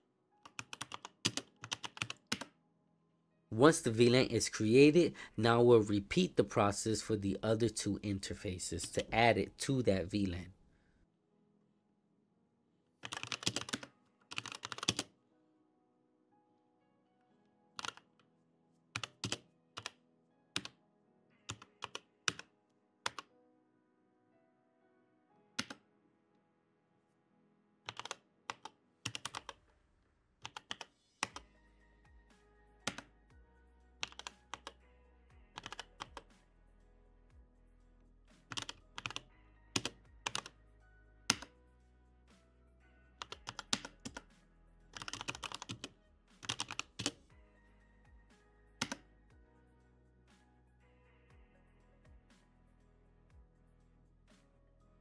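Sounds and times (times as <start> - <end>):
quiet background music: 0.0 - 55.0
keyboard typing: 0.4 - 2.6, 13.0 - 15.1, 17.8 - 18.2, 18.9 - 20.0, 20.6 - 20.8, 21.5 - 23.3, 25.6 - 25.8, 27.9 - 29.6, 30.4 - 31.5, 32.8 - 33.1, 34.0 - 34.8, 35.5 - 36.3, 38.4 - 40.6, 41.3 - 41.5, 43.2 - 44.3, 44.9 - 47.2, 48.8 - 49.1.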